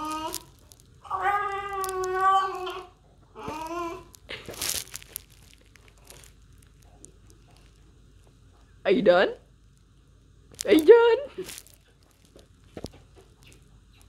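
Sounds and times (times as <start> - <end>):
dog crying in wails: 1.0 - 4.1.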